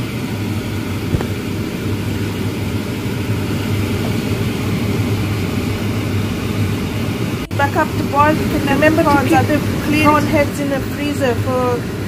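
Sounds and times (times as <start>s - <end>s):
low mechanical hum: 0.0s - 12.0s
noisy hiss: 0.8s - 6.7s
light tap: 1.1s - 1.4s.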